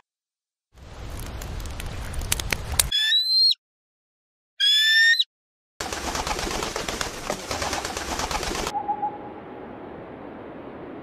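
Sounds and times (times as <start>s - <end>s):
noisy outdoor recording: 0.7s - 3.6s, 5.8s - 11.0s.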